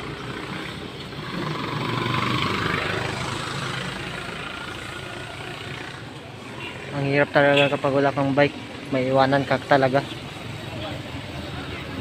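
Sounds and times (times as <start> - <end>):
motor vehicle passing: 0.0 - 7.0.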